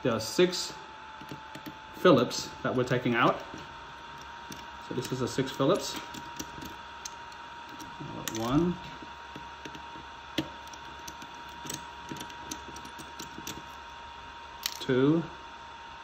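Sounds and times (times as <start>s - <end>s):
screwdriver clicking on screws: 1.2s - 1.8s, 3.4s - 14.0s.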